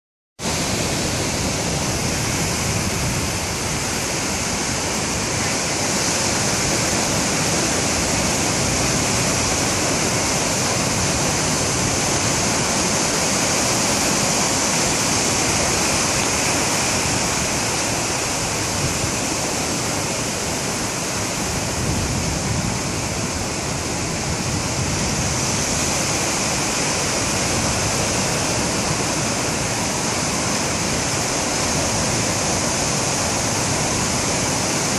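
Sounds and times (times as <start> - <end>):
ocean surf rushing: 0.4 - 34.9.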